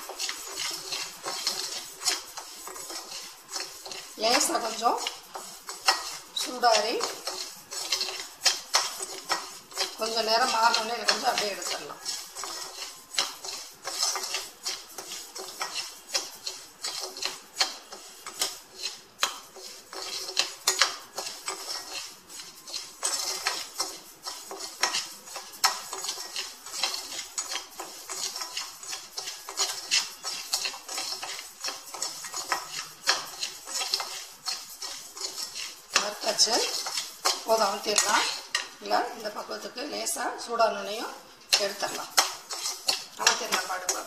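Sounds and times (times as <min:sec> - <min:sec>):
spoon scraping grains in pan: 0:00.0 - 0:44.0.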